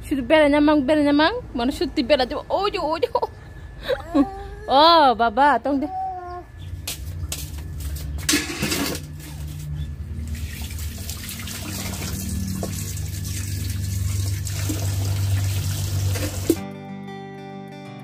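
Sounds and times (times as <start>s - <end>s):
low hum: 0.0s - 16.6s
water running from a tap: 10.2s - 16.6s.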